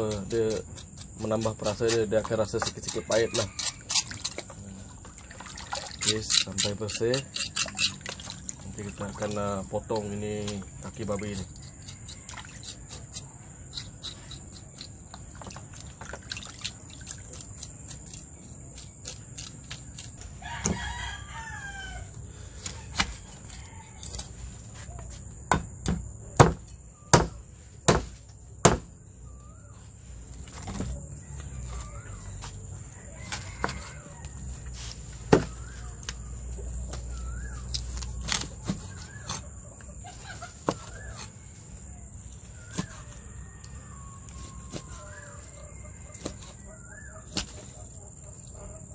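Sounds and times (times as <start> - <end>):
knife scraping skin in water: 0.0 - 4.6, 5.2 - 9.4, 11.1 - 20.1
rooster crowing: 2.8 - 4.2, 20.3 - 24.3, 31.2 - 34.8, 41.2 - 47.3
cleaver chopping on wooden board: 25.5 - 28.9, 42.7 - 43.0.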